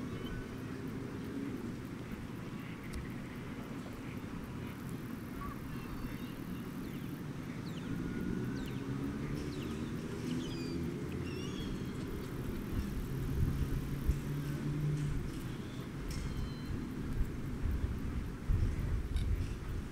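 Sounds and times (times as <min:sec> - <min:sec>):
birds chirping: 0:00.0 - 0:13.3
distant traffic rumble: 0:00.0 - 0:19.9.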